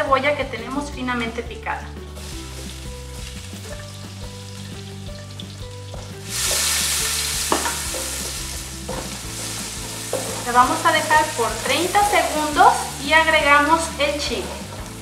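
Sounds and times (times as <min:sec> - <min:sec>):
onion sizzling in pot: 0:01.8 - 0:15.0
wooden spoon stirring: 0:05.9 - 0:15.0.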